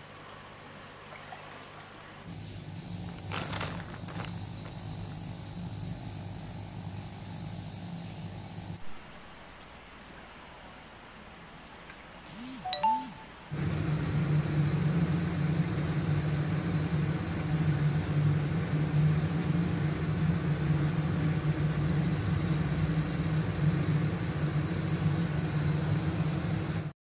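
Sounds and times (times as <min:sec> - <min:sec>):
low machine hum: 0:02.0 - 0:08.8, 0:12.3 - 0:26.9.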